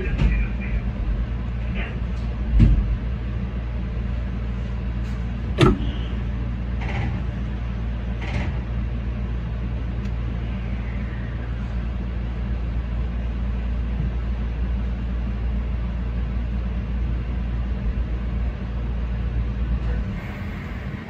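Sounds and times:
electric train low hum: 0.0 - 21.0
sharp clunk: 5.6 - 6.0.

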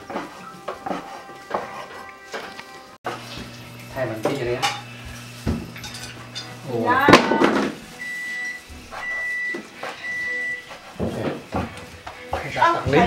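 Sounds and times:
appliance beeping: 3.1 - 12.1.

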